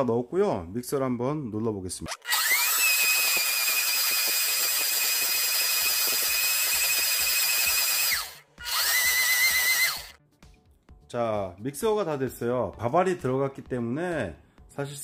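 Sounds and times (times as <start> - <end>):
blender motor whining: 2.1 - 10.2.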